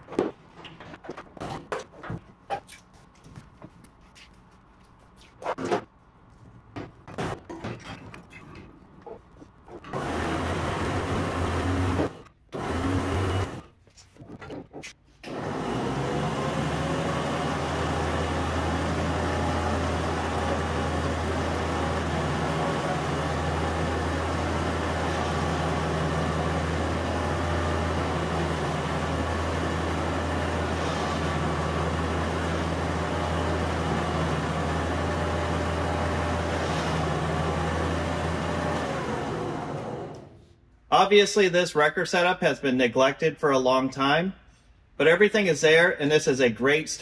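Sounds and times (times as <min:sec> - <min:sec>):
electric winch motor droning: 0:09.9 - 0:13.7, 0:15.2 - 0:40.4.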